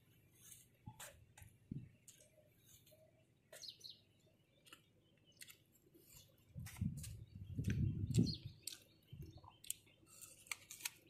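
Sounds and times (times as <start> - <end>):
chewing fruit: 7.6 - 11.0.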